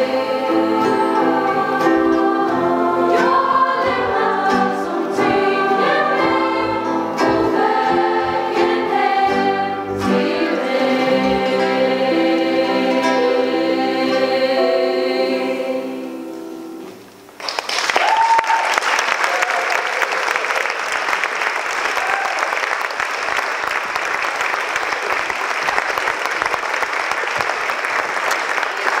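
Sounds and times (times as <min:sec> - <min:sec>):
choir singing with guitars: 0:00.0 - 0:17.0.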